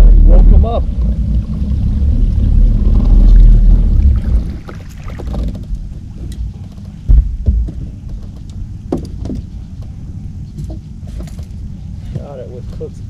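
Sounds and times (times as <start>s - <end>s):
low rumble: 0.0s - 13.0s
heavy dull thumps: 2.8s - 11.4s
knocks and clicks of handling: 5.2s - 10.0s.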